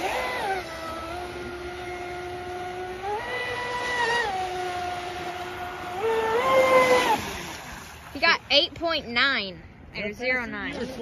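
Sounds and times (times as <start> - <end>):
electric boat motor whining: 0.0 - 8.0.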